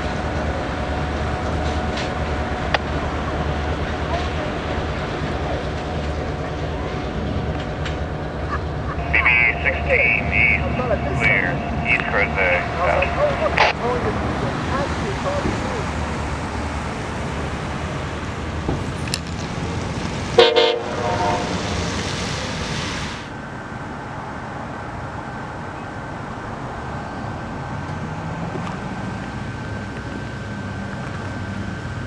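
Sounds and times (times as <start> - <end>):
train approaching: 0.0 - 32.0
train horn blast: 20.4 - 21.7.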